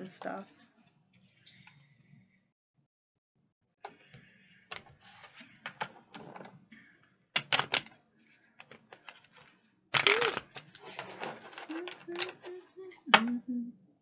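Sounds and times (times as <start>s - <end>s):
cards shuffled by hand: 8.6s - 12.7s.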